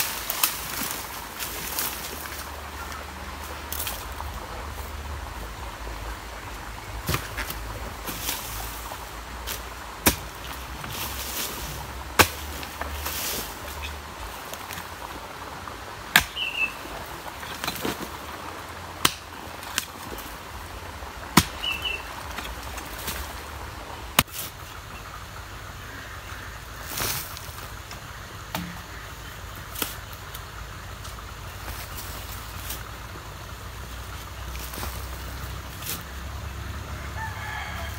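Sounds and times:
earth scraping: 0:00.0 - 0:37.9
hoe chopping into soil: 0:12.1 - 0:13.3, 0:16.1 - 0:16.5
bird chirping: 0:16.3 - 0:16.9, 0:21.5 - 0:22.2.

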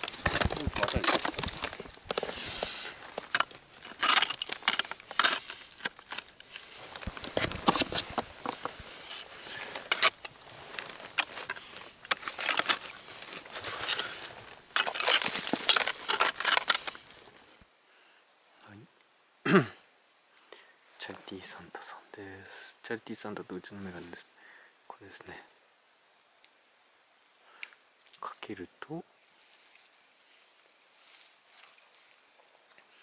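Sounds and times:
ice axe striking ice: 0:00.0 - 0:06.7, 0:07.3 - 0:10.4, 0:11.0 - 0:17.1
ice crackling and breaking: 0:00.0 - 0:17.5.

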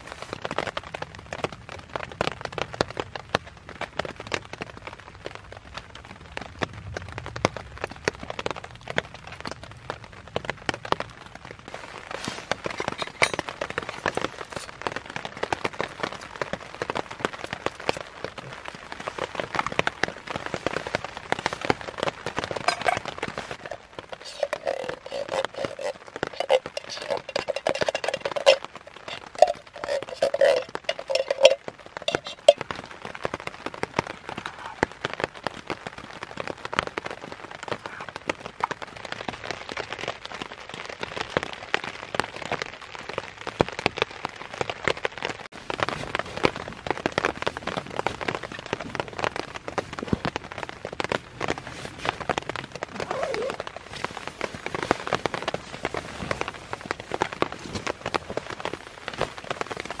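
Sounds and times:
rain pattering on a tarp: 0:00.0 - 1:00.0.

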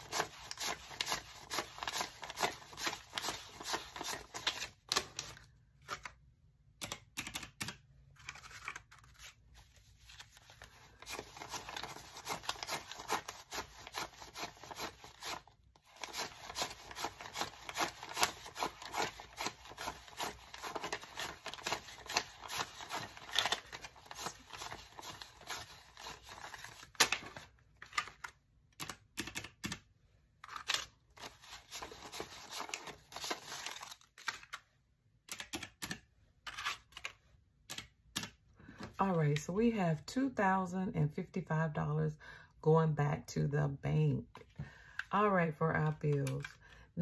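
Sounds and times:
paper bills flicked and rustling: 0:00.0 - 0:06.1, 0:08.2 - 0:28.4, 0:30.6 - 0:34.6.

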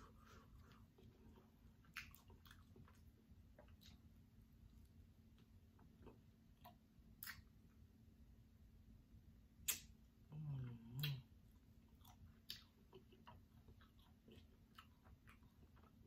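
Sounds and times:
lip smacks: 0:01.4 - 0:04.1, 0:05.8 - 0:07.6, 0:09.6 - 0:10.0, 0:10.8 - 0:11.3
wet mouth clicks: 0:06.1 - 0:07.5, 0:09.7 - 0:09.9, 0:10.8 - 0:11.3.

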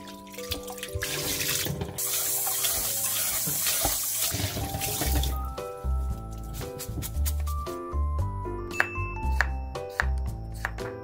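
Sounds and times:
water pouring and splashing in a sink: 0:00.0 - 0:05.5.

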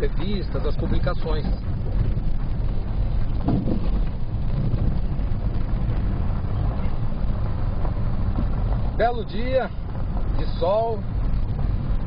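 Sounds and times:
car rumbling on dirt road: 0:00.0 - 0:12.0.

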